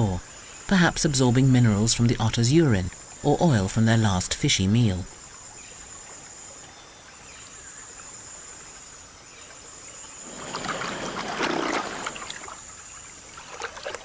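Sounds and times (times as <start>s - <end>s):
water splashing and sloshing: 9.6s - 14.0s.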